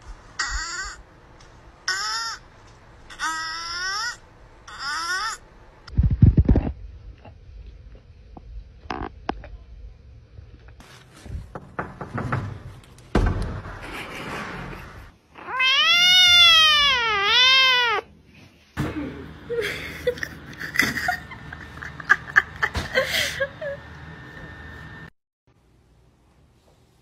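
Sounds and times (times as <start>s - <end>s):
kitten meowing: 15.4s - 18.0s.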